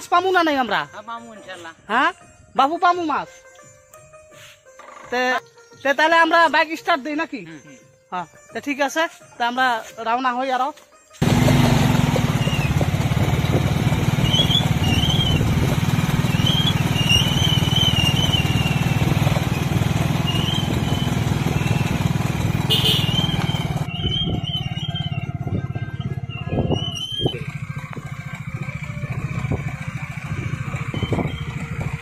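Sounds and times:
small motorbike engine running: 11.2 - 32.0.

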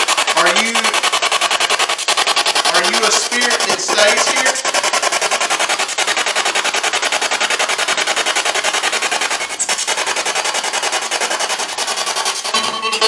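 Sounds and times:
radio static chopping: 2.7 - 4.6.

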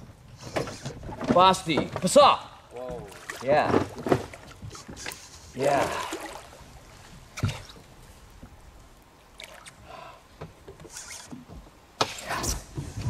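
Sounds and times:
water splashing and swirling: 0.4 - 10.0.

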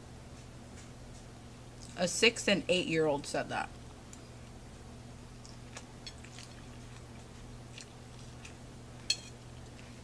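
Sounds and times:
low steady hum: 0.0 - 10.0
chewing salad: 3.8 - 10.0.

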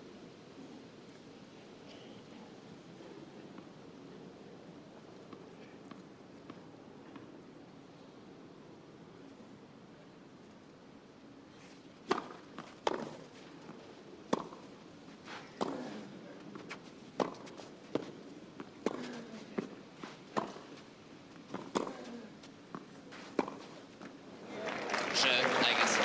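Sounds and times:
tennis ball bouncing: 12.1 - 13.2, 14.3 - 14.6, 16.6 - 19.7, 20.3 - 20.6, 21.5 - 22.0, 22.7 - 23.7
low crowd hush: 24.4 - 26.0.

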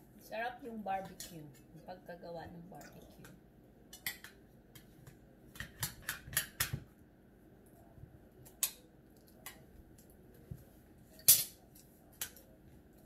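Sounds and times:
cutlery clicking on plates: 3.9 - 4.9, 5.5 - 6.8, 8.4 - 9.6, 11.2 - 12.5.

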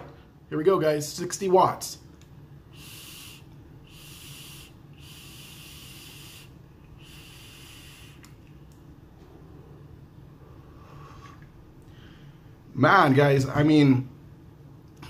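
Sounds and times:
faint hiss of vapour: 2.6 - 8.6.

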